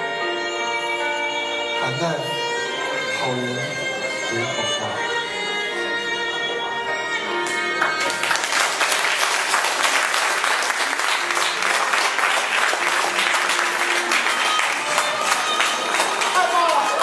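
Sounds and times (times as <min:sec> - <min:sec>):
audience clapping: 0:07.4 - 0:17.0.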